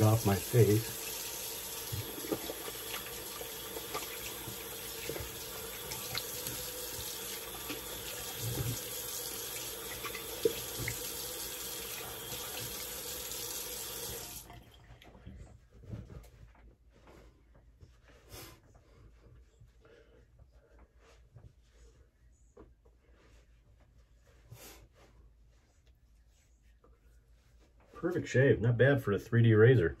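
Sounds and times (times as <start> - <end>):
water splashes: 0.0 - 13.1
tap running into sink: 1.7 - 14.6.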